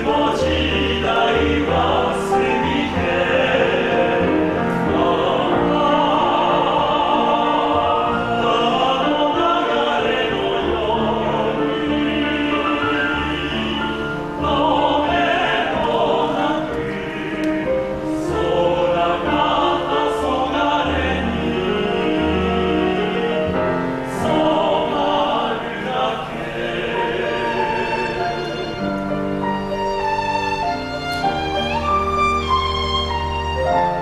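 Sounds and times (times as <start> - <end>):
men singing in harmony: 0.0 - 29.1
solo violin melody: 27.0 - 34.0.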